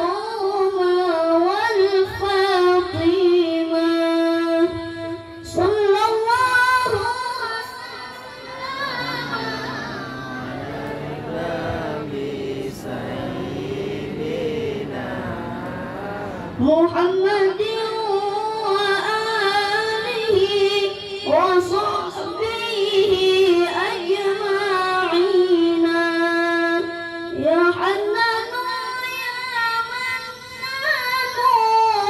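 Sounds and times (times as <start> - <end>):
child chanting: 7.6 - 16.7
lower voice chanting: 8.1 - 17.2.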